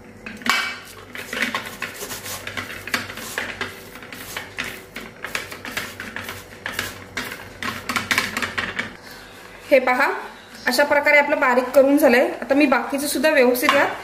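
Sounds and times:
metal cup scraping on sieve: 0.8 - 8.3.

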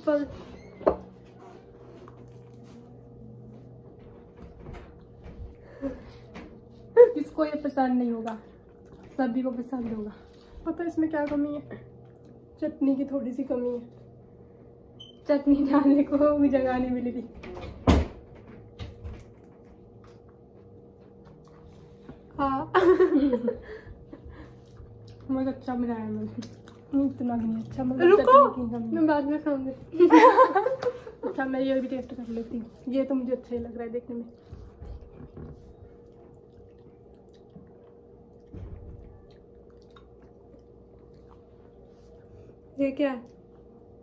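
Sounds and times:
faint room hum: 0.0 - 44.0
woman laughing: 22.7 - 24.5, 29.9 - 31.5.

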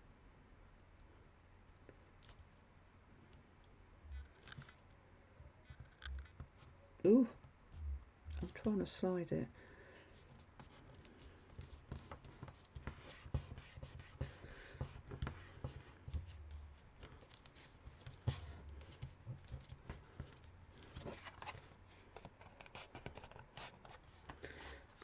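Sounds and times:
dull thumps: 7.4 - 8.8
card rubbing and paper rustling: 10.2 - 25.0.

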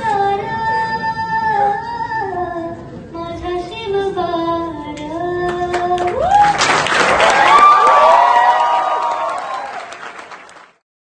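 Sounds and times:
audience applause and cheering: 6.0 - 10.8.

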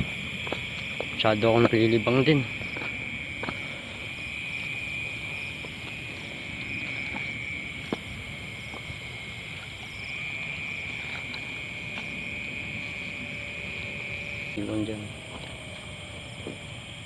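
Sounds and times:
frogs and insects trilling: 0.0 - 17.0.

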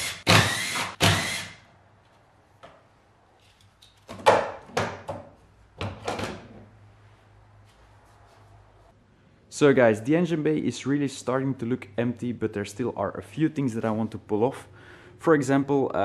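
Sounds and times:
cordless drill running: 0.0 - 1.6.

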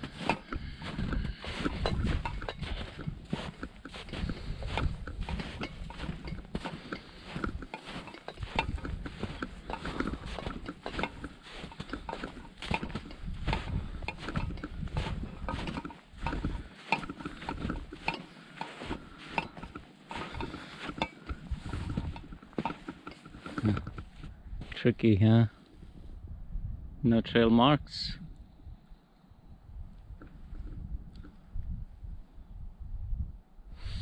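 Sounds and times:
footsteps crunching in snow: 0.0 - 24.9
wind rumbling on microphone: 0.0 - 25.2, 25.8 - 34.0.

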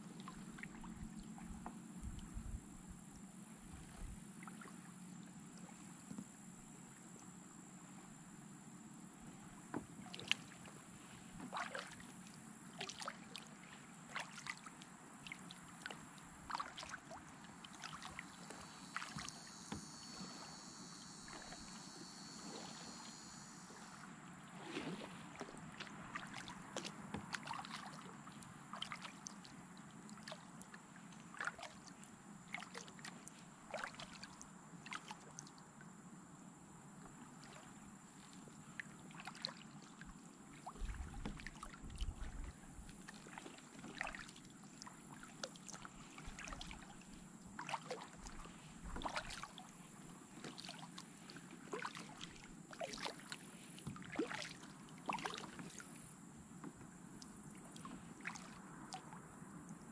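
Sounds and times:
paddle splashing in water: 0.0 - 2.6, 9.2 - 35.5, 37.1 - 59.3.

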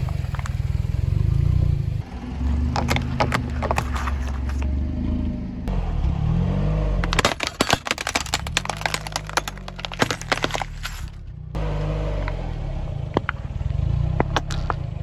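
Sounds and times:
car engine running: 0.0 - 6.2, 6.8 - 15.0
plastic cups cracking under tyre: 2.4 - 4.7, 7.0 - 11.2, 13.1 - 13.5, 14.1 - 15.0
plastic and glass breaking: 2.8 - 4.6, 7.0 - 11.2, 14.3 - 14.8.

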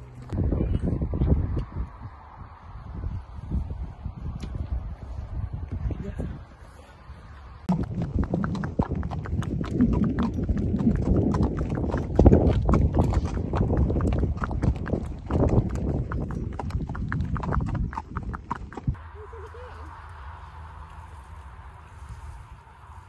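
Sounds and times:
low rumble: 7.2 - 23.0
hooves clip-clopping on tarmac: 7.7 - 19.0.

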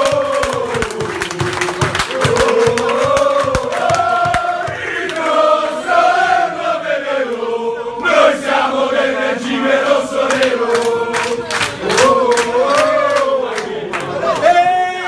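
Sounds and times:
rhythmic handclaps: 0.0 - 6.3, 9.8 - 14.6
men chanting in unison: 0.0 - 14.5.

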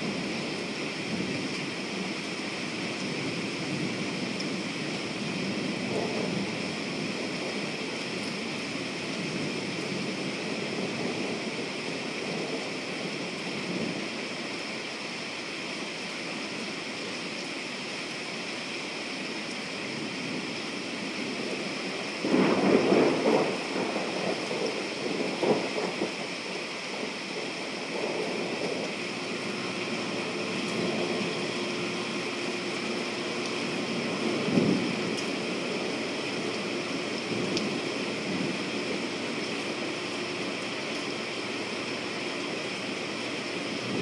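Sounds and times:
steady rain falling: 0.0 - 44.0
thunder rumbling: 2.9 - 14.1, 21.2 - 44.0.

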